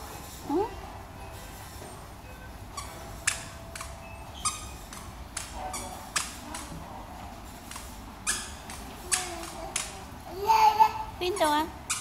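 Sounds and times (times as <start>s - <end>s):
squeaky shoes squeaking: 2.7s - 6.7s, 7.7s - 10.0s, 11.2s - 12.0s.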